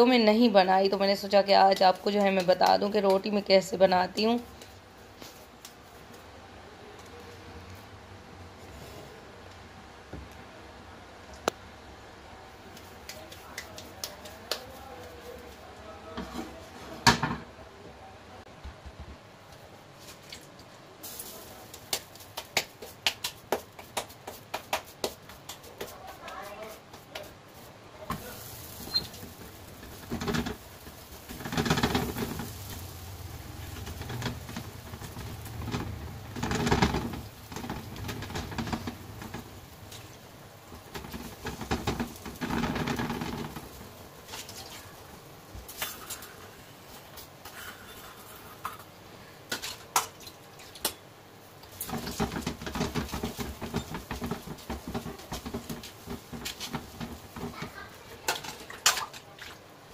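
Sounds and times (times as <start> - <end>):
hands rubbing dough: 12.6 - 16.9, 21.3 - 45.1, 51.7 - 58.2
hands slapping dough: 12.7 - 15.3, 21.7 - 27.4.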